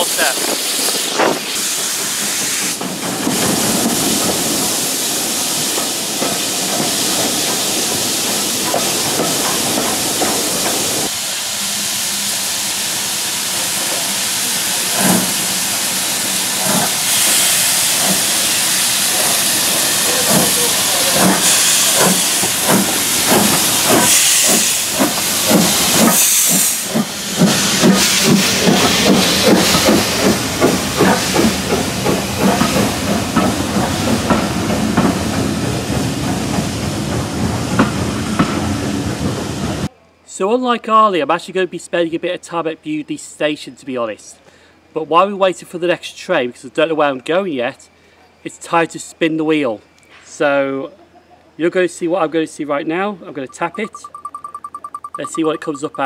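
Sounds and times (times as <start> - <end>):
steam locomotive exhaust beats: 0.0 - 39.9
steam locomotive hissing: 0.0 - 39.9
train running noise: 0.0 - 39.9, 53.4 - 56.0.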